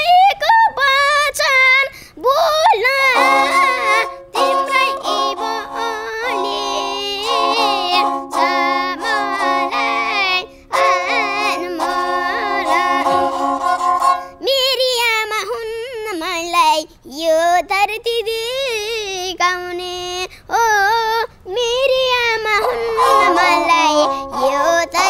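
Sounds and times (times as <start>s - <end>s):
boy singing: 0.0s - 25.0s
bowed fiddle notes: 2.7s - 14.5s, 22.6s - 25.0s.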